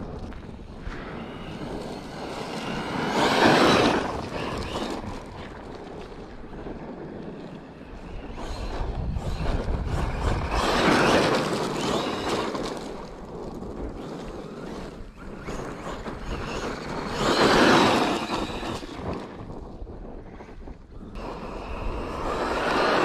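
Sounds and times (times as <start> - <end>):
tyres on sand and gravel: 0.0 - 19.7
electric toy truck motor whine: 1.2 - 5.3, 7.9 - 19.4, 21.1 - 23.0.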